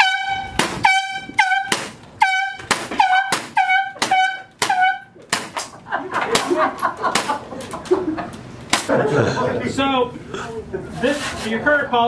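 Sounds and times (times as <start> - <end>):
brief horn-like tone: 0.0 - 5.1.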